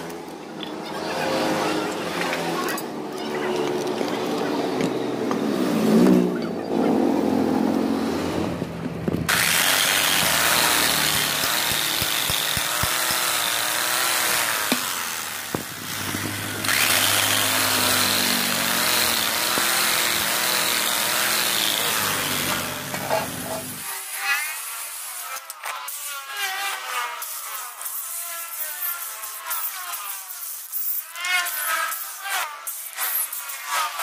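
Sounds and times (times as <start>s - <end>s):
drill wire brush grinding metal: 9.3s - 34.0s.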